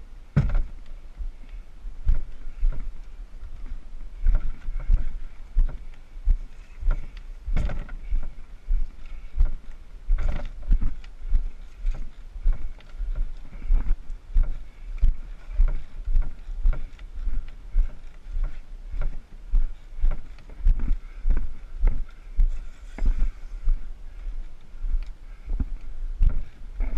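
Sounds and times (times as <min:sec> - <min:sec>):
canoe thumping: 0:00.3 - 0:00.8, 0:06.9 - 0:08.2
footsteps on rocky trail: 0:00.4 - 0:26.9.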